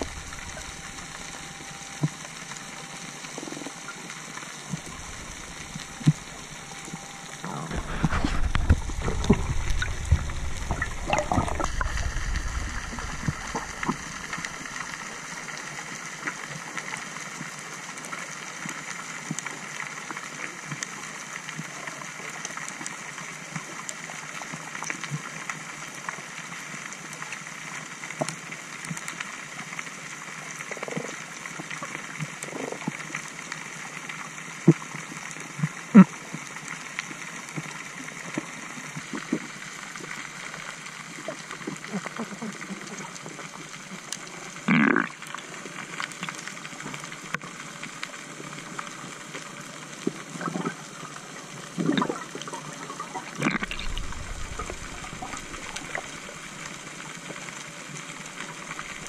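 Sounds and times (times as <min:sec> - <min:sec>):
steady hiss: 0:00.0 - 0:17.7, 0:53.4 - 0:59.0
underwater rushing water: 0:00.0 - 0:59.0.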